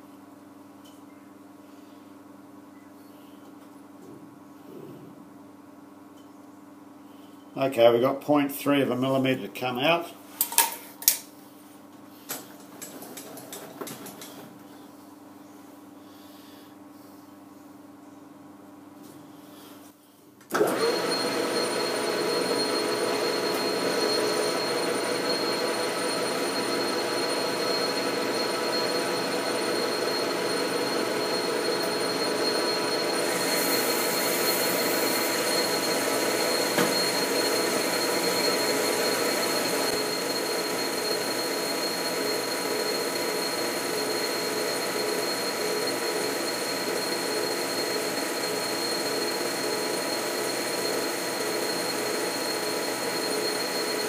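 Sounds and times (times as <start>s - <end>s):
metal lathe running: 20.6s - 54.0s.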